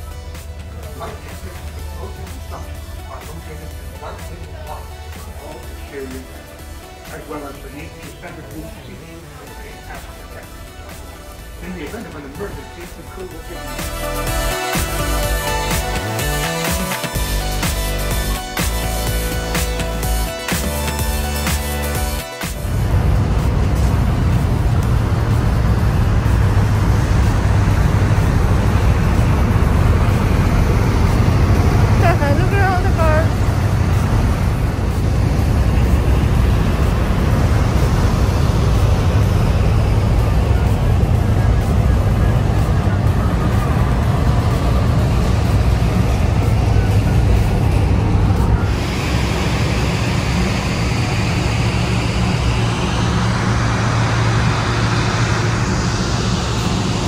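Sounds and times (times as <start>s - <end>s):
low engine drone: 0.0s - 57.0s
rushing noise: 0.0s - 57.0s.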